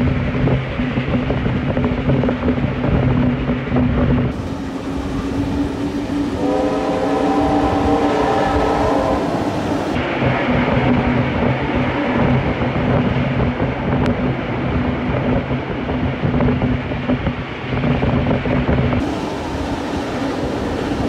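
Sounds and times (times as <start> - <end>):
train wheels clattering on rails: 0.0 - 21.0
train horn blast: 4.4 - 10.0.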